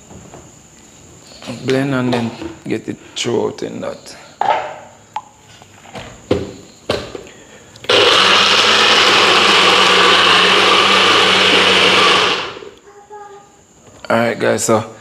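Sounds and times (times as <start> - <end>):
blender motor running: 7.9 - 12.8.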